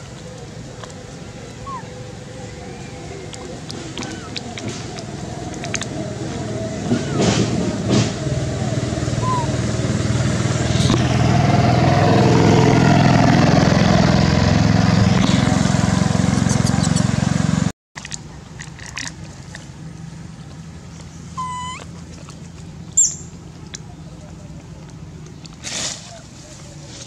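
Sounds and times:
vehicle engine running: 0:00.0 - 0:17.7, 0:18.3 - 0:27.0
short high squeaking call: 0:09.2 - 0:09.6, 0:21.3 - 0:21.9.

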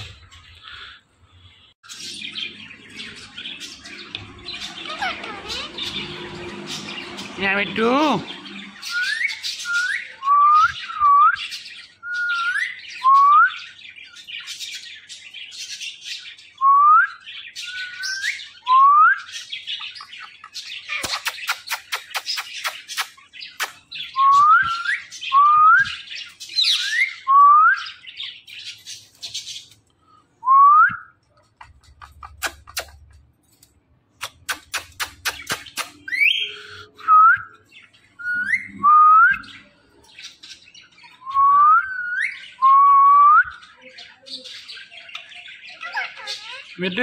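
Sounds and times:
sharp clicks: 0:31.7 - 0:36.1
parrot whistling: 0:38.2 - 0:39.5.

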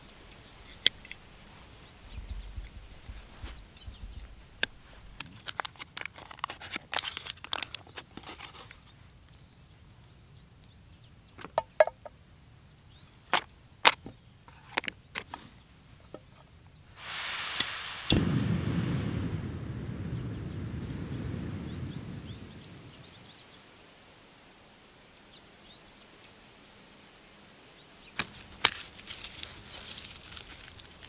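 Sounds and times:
gas hissing from burner: 0:16.9 - 0:22.6
gas flame rushing: 0:16.9 - 0:23.0.

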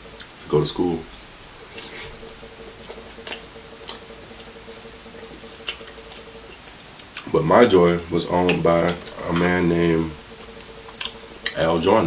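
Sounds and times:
faint hum: 0:00.0 - 0:12.0
wet chewing smacks: 0:10.3 - 0:11.6.

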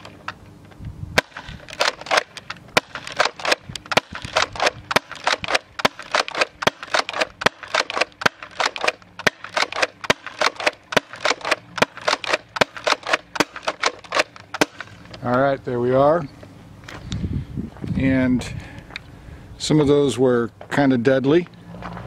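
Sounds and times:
toy blaster pumped and fired: 0:01.2 - 0:15.0.

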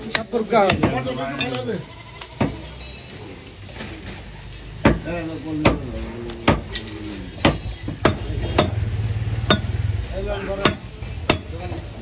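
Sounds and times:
cleaver chopping on wooden block: 0:07.4 - 0:08.8, 0:10.6 - 0:11.6.

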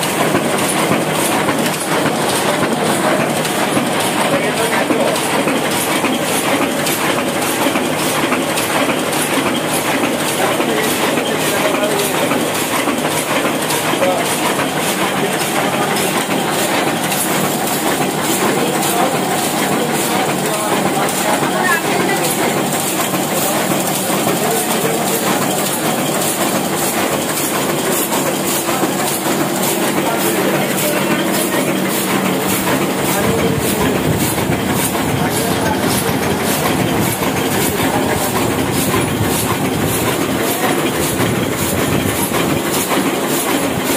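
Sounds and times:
printing press clattering: 0:00.0 - 0:43.9.

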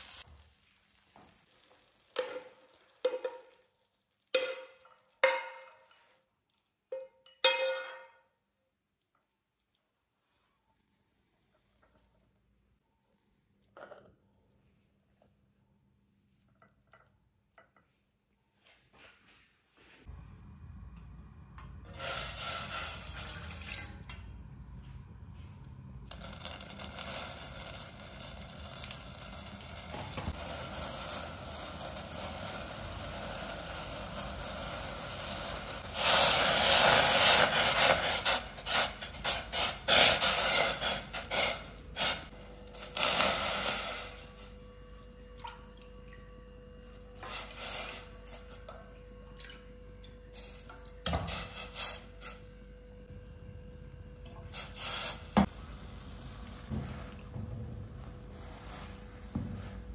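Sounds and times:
pan hissing on gas burner: 0:00.0 - 0:02.4, 0:21.2 - 0:23.9, 0:26.1 - 0:44.5
liquid boiling and sputtering: 0:20.1 - 0:51.0
water pouring into saucepan: 0:21.8 - 0:24.4, 0:26.1 - 0:37.1.

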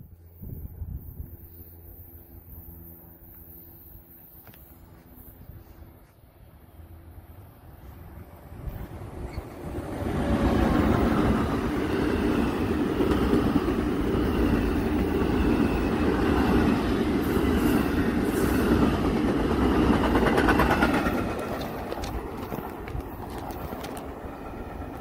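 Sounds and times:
train wheels rumbling on rails: 0:08.3 - 0:25.0
rail clicks: 0:08.4 - 0:25.0.

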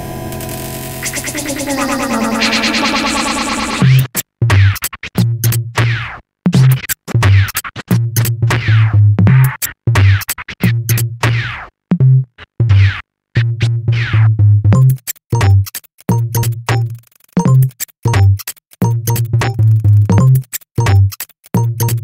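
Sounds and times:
electronic music with bass beat: 0:01.0 - 0:04.8, 0:13.6 - 0:22.0.

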